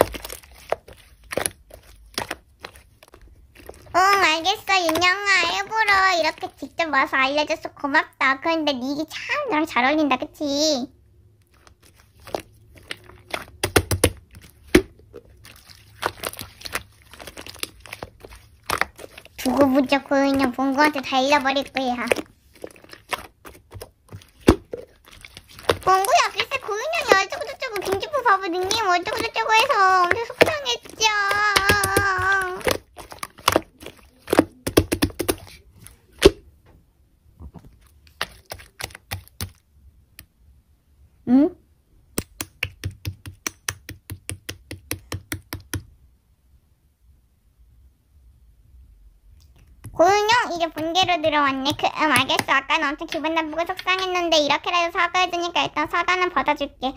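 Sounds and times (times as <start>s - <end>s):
slime clicking and popping: 0.0s - 6.6s, 11.4s - 36.4s, 38.1s - 40.3s, 42.1s - 45.9s, 49.4s - 54.1s.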